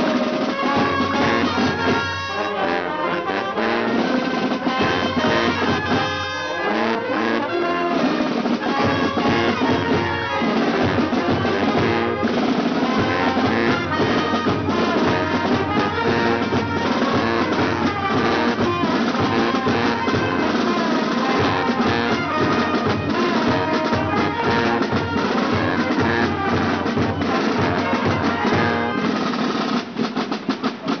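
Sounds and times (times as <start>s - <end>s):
brass band playing: 0.0s - 31.0s
drum beats: 0.0s - 31.0s.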